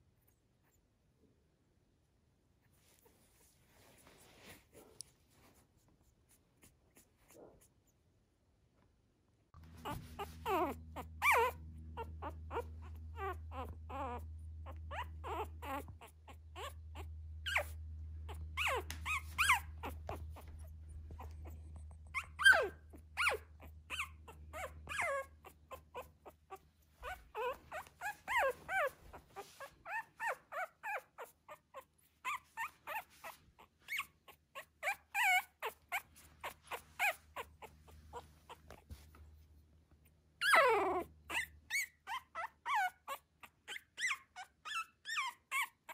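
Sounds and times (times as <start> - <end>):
puppy whimpering and squeaking: 9.6 - 39.2, 40.4 - 45.9.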